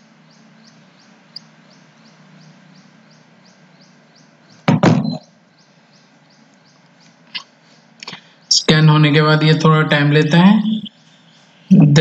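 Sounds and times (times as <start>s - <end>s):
low steady hum: 0.0s - 12.0s
loud knocking: 4.7s - 5.2s.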